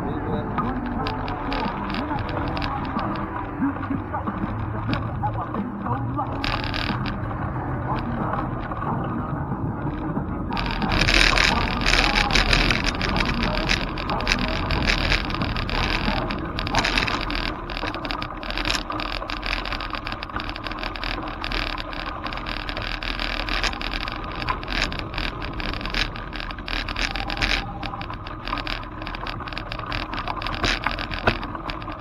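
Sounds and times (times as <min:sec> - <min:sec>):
bicycle tyres on gravel: 0:00.0 - 0:32.0
wind rumble on microphone: 0:00.0 - 0:32.0
rattling clicks and knocks: 0:09.8 - 0:32.0.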